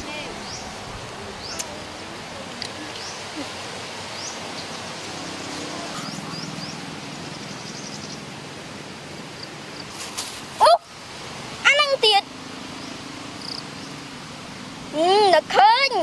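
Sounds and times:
steady background hiss: 0.0 - 16.0.

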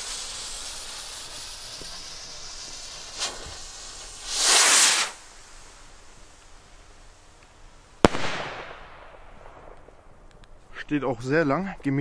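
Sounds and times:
firework rocket hissing: 0.0 - 10.7
sharp crack: 1.2 - 5.4, 7.4 - 10.6.

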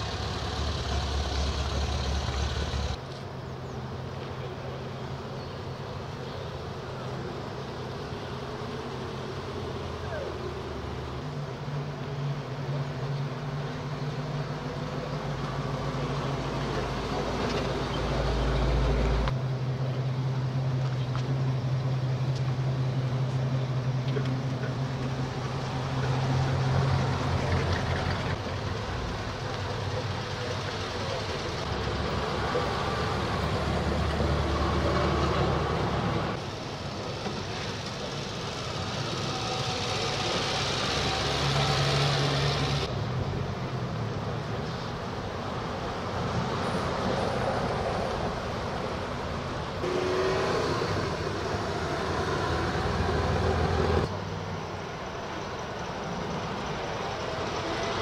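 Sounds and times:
car engines driving past: 0.0 - 58.0.

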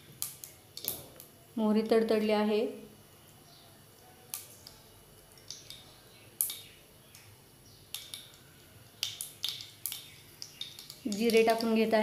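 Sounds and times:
seeds popping in hot oil: 0.0 - 1.4, 3.9 - 12.0.

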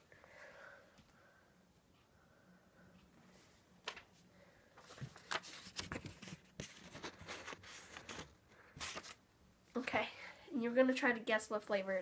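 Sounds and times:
paper rustling and crackling: 4.8 - 9.2.

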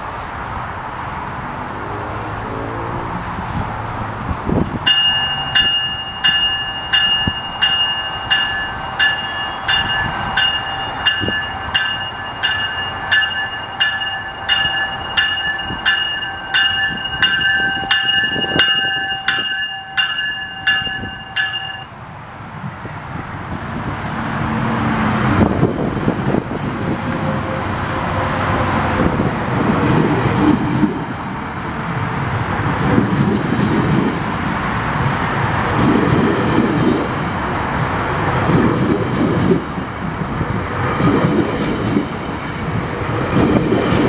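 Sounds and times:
train rumbling: 0.0 - 44.0
train bell ringing: 4.9 - 22.0.

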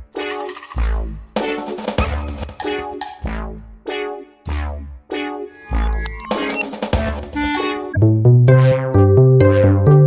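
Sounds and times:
electronic music with synthesizer: 0.0 - 10.0.

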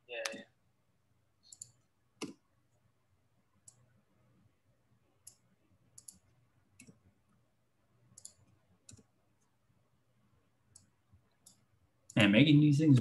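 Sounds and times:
faint computer keyboard keystrokes: 5.2 - 7.0, 8.1 - 9.1.

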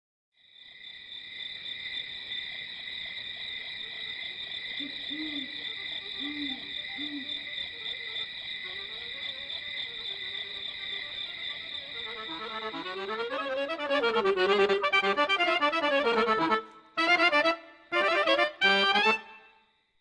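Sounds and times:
crickets chirping: 0.4 - 16.6
owl hooting: 4.8 - 10.0.

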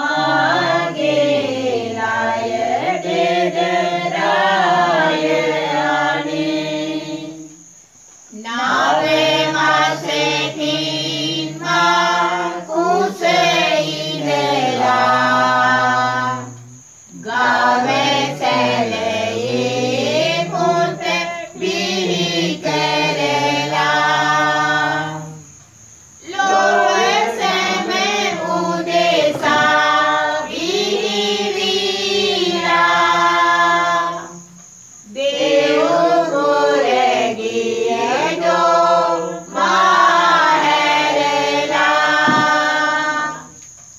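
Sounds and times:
group of voices chanting: 8.4 - 25.4, 26.2 - 34.4, 35.1 - 43.6.

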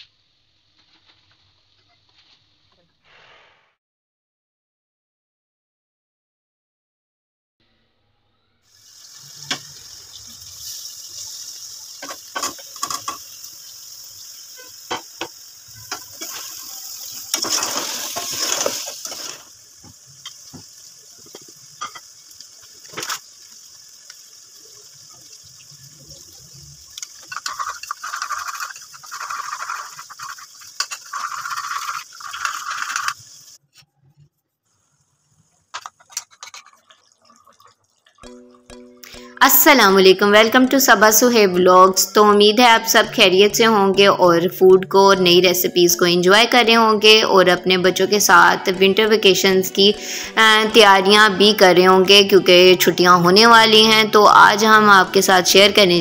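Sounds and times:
steady sizzling hiss: 0.0 - 2.7, 8.7 - 33.6, 34.6 - 37.2
water pouring into pot: 8.7 - 33.6, 35.2 - 39.0.

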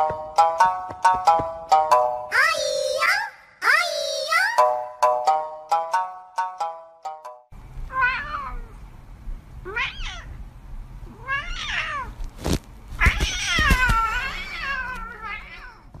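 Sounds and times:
cat meowing: 7.9 - 8.8, 9.6 - 10.4, 11.1 - 12.2, 13.0 - 15.9.

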